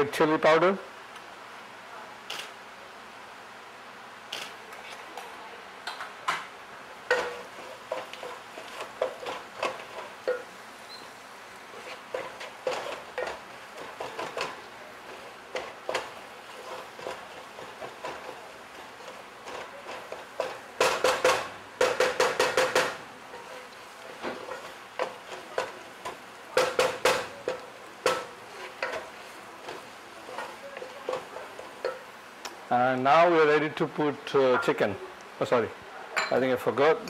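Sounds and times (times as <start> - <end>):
spatula scraping a pan: 7.1 - 10.5, 11.6 - 21.3, 23.3 - 32.1.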